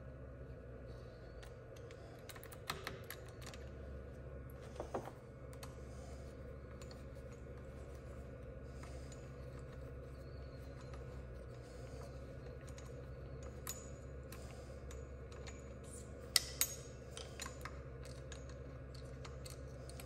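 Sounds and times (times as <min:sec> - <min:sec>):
low steady hum: 0:00.0 - 0:20.0.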